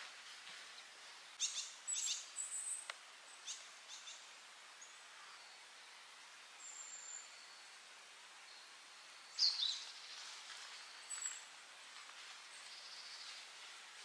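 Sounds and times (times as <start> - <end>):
faint steady hiss: 0.0 - 14.0
wild bird chirps: 1.4 - 5.5.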